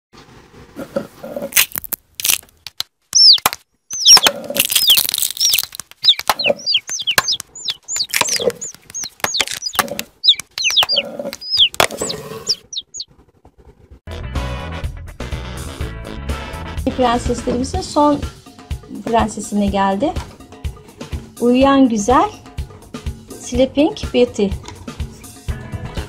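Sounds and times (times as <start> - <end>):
eggshells cracking: 1.5 - 13.0
chick peeps: 3.2 - 13.2
music: 14.1 - 26.0.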